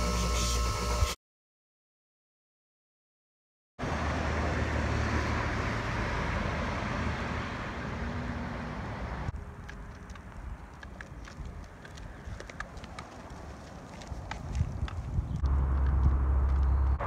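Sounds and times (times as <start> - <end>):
road traffic noise: 3.8 - 17.0.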